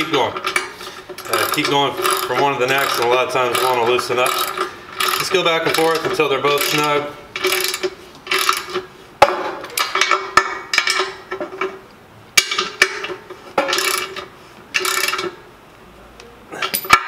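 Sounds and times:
socket ratchet clicking: 14.8 - 15.3.

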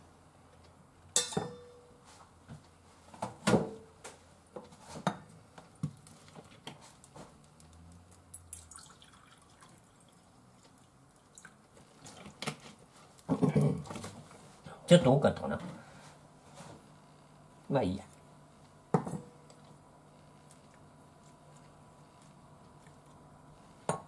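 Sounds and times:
water trickling into metal cup: 8.5 - 10.3
cup and bottle knocking on counter: 18.9 - 19.3.

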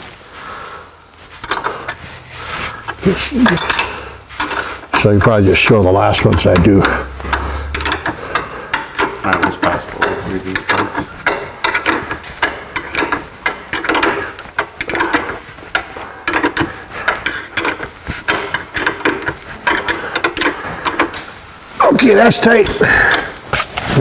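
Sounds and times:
ratcheting wrench clicking: 1.4 - 2.0, 2.9 - 5.2, 6.0 - 21.2.

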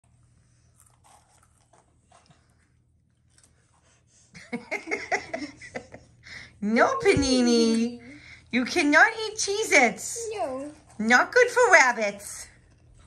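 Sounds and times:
crackers being chewed: 0.0 - 4.1, 12.5 - 13.0
child's voice: 10.1 - 10.9.

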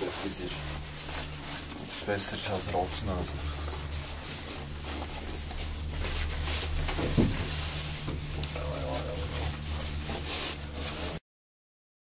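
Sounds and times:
gondola cabin low hum: 0.0 - 11.2
sharp thump: 6.8 - 7.5.

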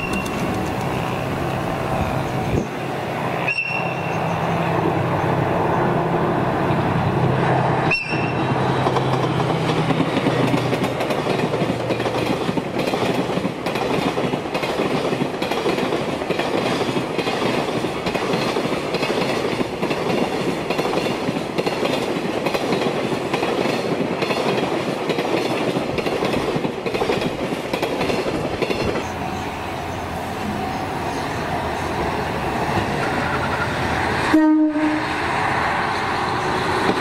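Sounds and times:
rumble of wheels on rail: 0.0 - 37.0
train wheels clacking over rail joints: 8.0 - 29.2.

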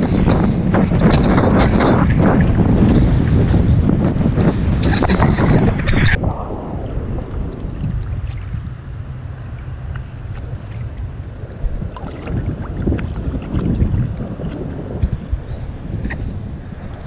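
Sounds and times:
water sloshing around camera: 0.0 - 17.0
wind on microphone: 0.0 - 17.0
small splashes and drips: 9.5 - 17.0.

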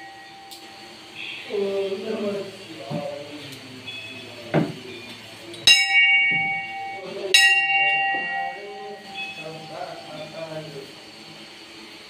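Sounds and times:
temple bell ringing: 0.0 - 2.0, 5.5 - 10.7
dull knock: 4.5 - 4.8.

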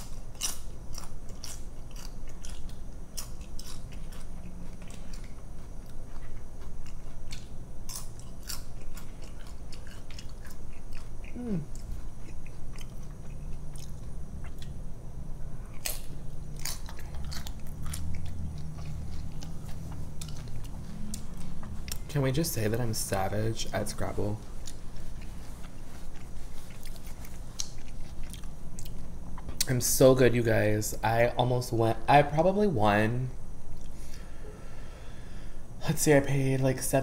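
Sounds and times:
chewing tortilla chips: 0.0 - 14.8, 15.6 - 29.8.

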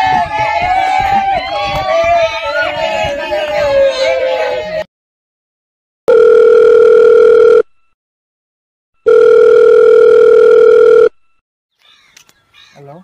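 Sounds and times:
telephone ringback tone beeps: 6.1 - 7.8, 9.0 - 11.2.

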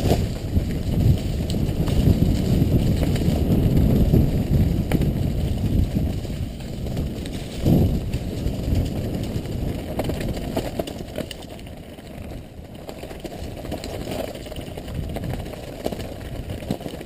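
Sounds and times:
bike rattles over stones: 0.0 - 17.0
bike tyres rumbling on gravel: 0.0 - 17.0.

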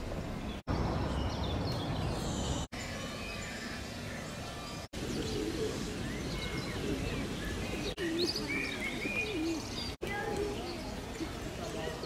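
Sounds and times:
outdoor background noise: 0.0 - 12.0
small birds chirping: 0.0 - 12.0
pigeons cooing: 5.0 - 11.6.

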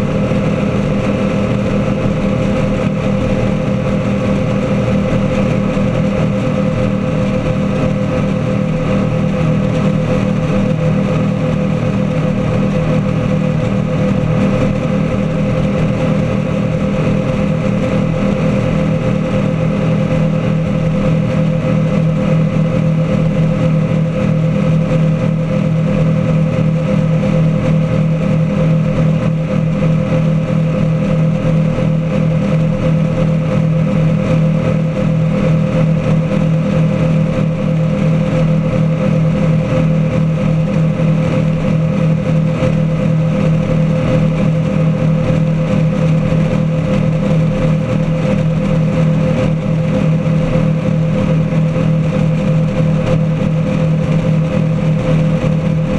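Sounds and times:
boat engines droning: 0.0 - 55.9
churning water: 0.0 - 55.9.

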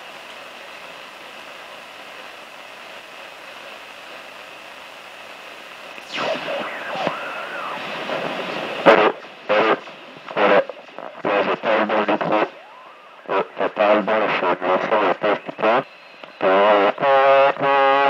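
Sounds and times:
radio static hiss: 0.0 - 18.0
whistling warbling radio tones: 6.0 - 16.8
man's voice through radio: 6.0 - 18.0.

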